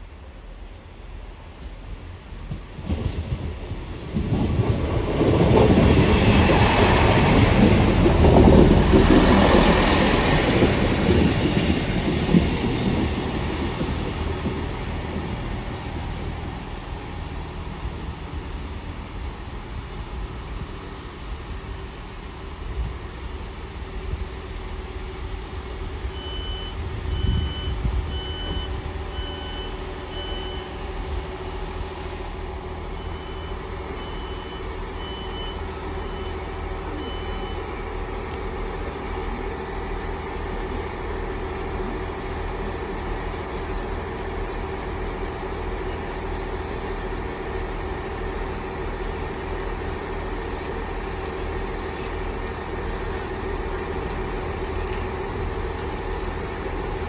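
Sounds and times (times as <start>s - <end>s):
door warning beeps: 26.2s - 30.7s.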